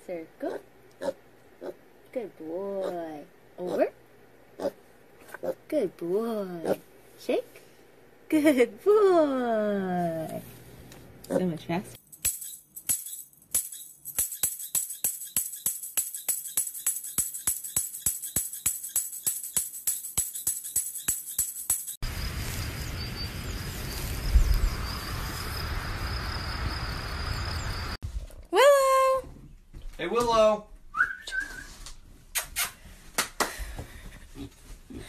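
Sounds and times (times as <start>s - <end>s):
wind-like outdoor noise: 22.0s - 28.2s.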